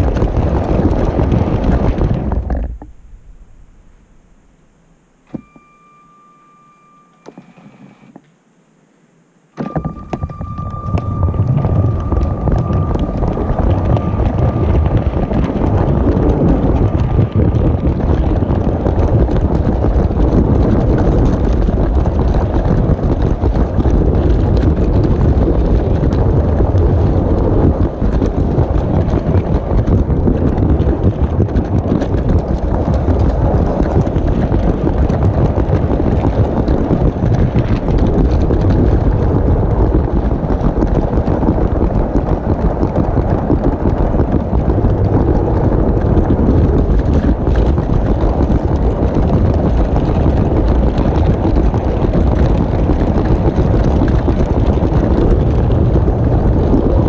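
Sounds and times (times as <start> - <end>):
faint high whine: 2.3 - 22.2.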